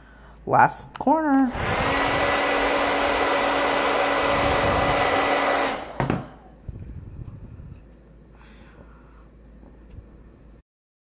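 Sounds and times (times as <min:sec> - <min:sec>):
hair dryer blowing: 0:01.4 - 0:06.6
hair dryer switch click: 0:05.6 - 0:06.3.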